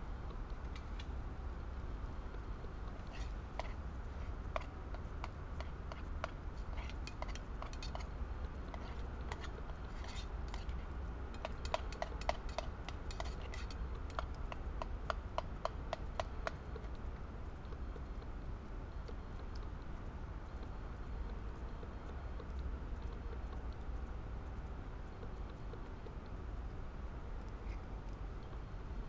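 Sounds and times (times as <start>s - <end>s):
steady low rumble: 0.0s - 11.5s.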